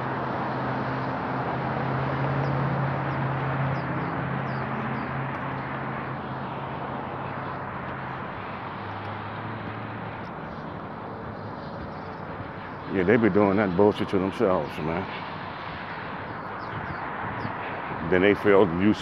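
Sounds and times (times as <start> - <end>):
street traffic noise: 0.0 - 19.0
bird chirping: 3.7 - 5.1.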